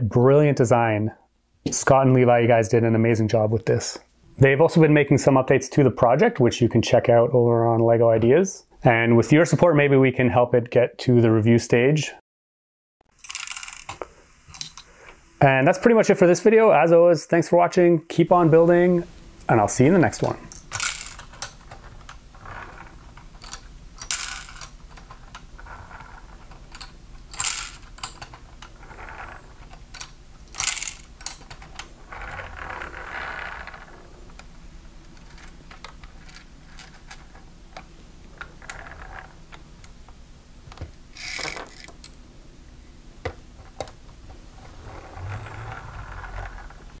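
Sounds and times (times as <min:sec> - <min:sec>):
plastic toy clicks and rattles: 0:13.2 - 0:14.0, 0:20.2 - 0:31.9, 0:41.2 - 0:42.2.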